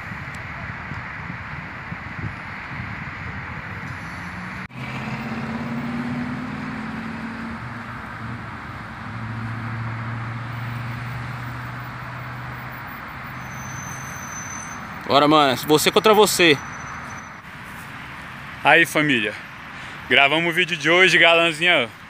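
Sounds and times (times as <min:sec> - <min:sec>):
road noise: 0:00.0 - 0:22.0
vehicle engine hum: 0:00.0 - 0:22.0.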